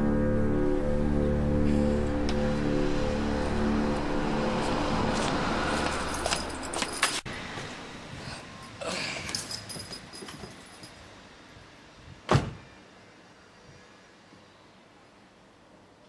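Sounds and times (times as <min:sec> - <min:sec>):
background music: 0:00.0 - 0:06.7
keys jangling: 0:06.1 - 0:07.2, 0:09.2 - 0:11.0.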